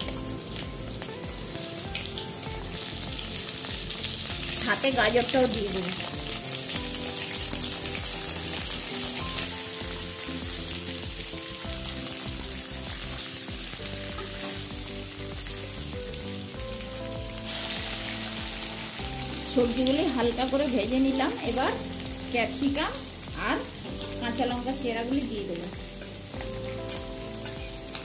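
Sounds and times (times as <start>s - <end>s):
vegetables sizzling in hot oil: 0.0s - 28.0s.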